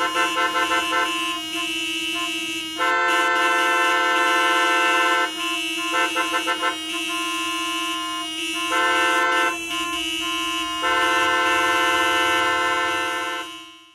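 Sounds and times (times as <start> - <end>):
car horns honking: 0.0 - 13.9.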